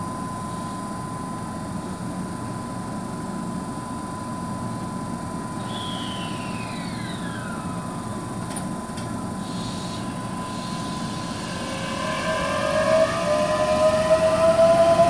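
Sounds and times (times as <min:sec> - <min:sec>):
electric train humming: 0:05.3 - 0:15.0
train motor whine rising: 0:05.6 - 0:15.0.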